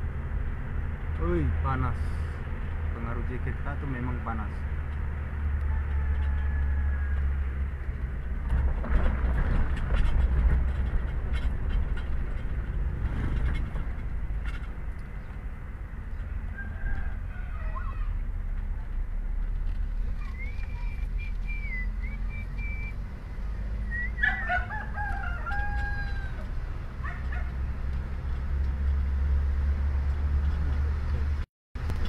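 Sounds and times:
car engine and road rumble: 0.0s - 32.0s
rooster crowing: 5.4s - 7.6s, 16.3s - 18.2s, 24.2s - 27.5s.

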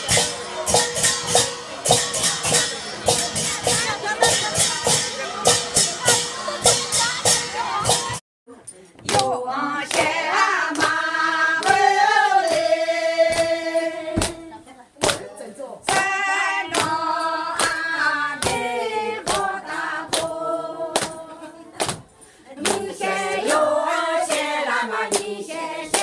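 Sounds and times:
sharp beat: 0.0s - 8.2s
group of voices singing: 9.0s - 26.0s.

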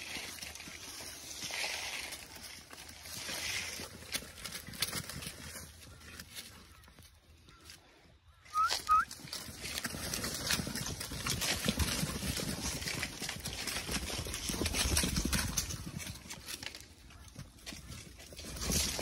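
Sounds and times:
sheep hooves trampling dirt: 0.0s - 19.0s
short high chirps: 8.5s - 9.1s.

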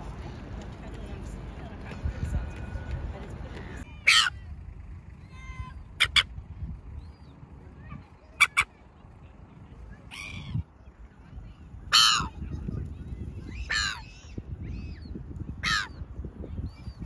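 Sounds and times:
low background rumble: 0.0s - 17.0s
gulls calling: 3.6s - 17.0s.

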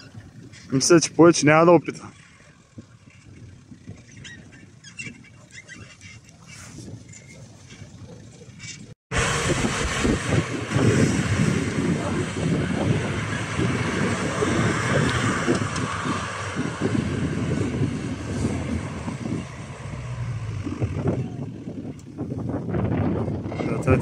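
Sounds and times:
tyres spinning in snow: 0.0s - 24.0s
engine revving under load: 9.1s - 24.0s.

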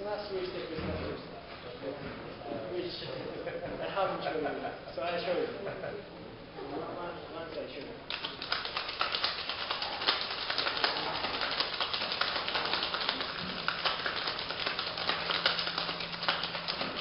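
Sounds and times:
ice rattling in cocktail shaker: 8.1s - 17.0s.

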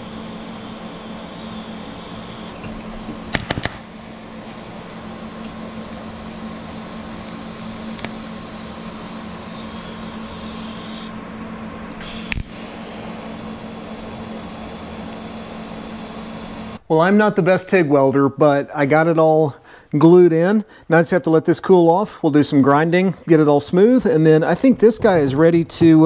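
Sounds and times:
welding arc hum and hiss: 0.0s - 16.9s, 19.0s - 26.0s
sharp welding crackles: 3.2s - 4.5s.

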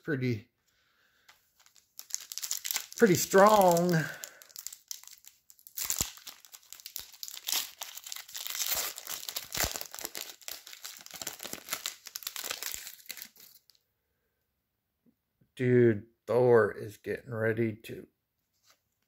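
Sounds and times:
card pack wrapper crinkling: 1.2s - 13.8s.

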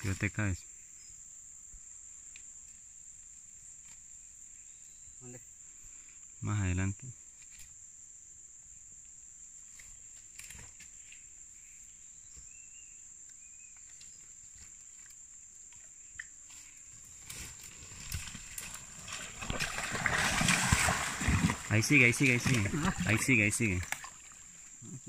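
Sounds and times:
splashing through shallow water: 17.2s - 25.0s.

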